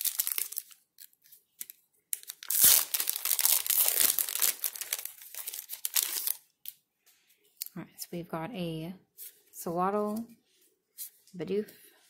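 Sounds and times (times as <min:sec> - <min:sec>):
foil pack tearing and crinkling: 0:00.0 - 0:06.4.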